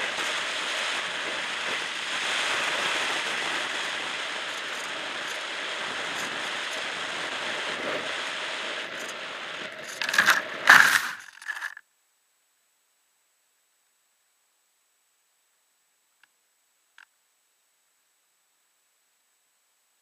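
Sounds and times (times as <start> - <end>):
air rushing over camera: 3.6 - 11.8.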